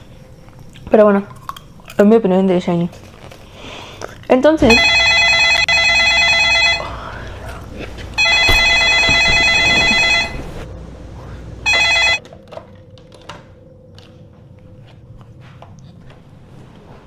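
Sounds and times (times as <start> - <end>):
landline telephone ringing: 4.7 - 7.2, 8.2 - 10.6, 11.6 - 12.3.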